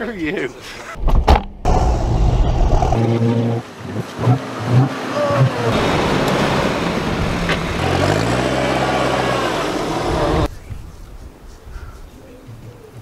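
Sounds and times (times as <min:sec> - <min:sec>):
engine running under load: 0:01.7 - 0:10.5
water churning and splashing: 0:03.0 - 0:10.5.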